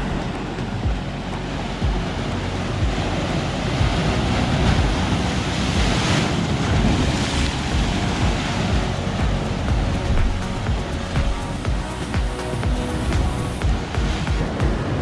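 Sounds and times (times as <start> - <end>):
wind buffeting microphone: 0.0 - 11.9
ocean surf splashing: 0.0 - 15.0.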